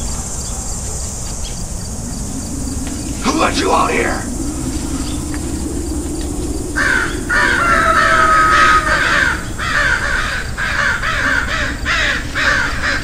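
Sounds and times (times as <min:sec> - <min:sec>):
low steady hum: 0:00.0 - 0:10.4
crows cawing: 0:06.8 - 0:13.0.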